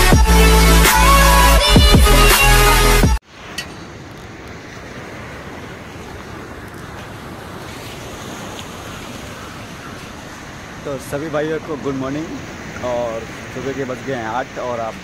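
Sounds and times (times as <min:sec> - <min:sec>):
surf washing up a beach: 0:03.2 - 0:15.0.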